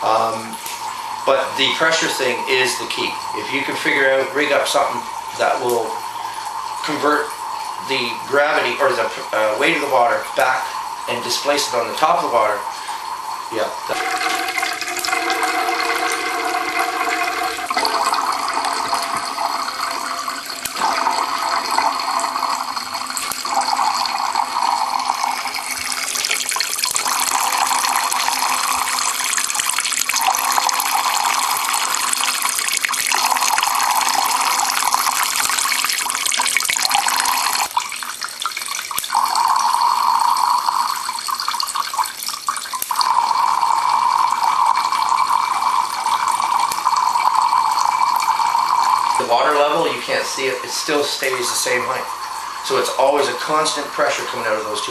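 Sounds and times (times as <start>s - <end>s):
water splashing into cans: 7.8s - 39.2s.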